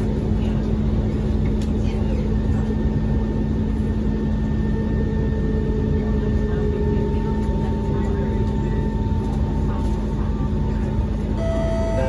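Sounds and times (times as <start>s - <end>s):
train wheels rumbling on track: 0.0s - 12.0s
steady hum: 11.3s - 12.0s.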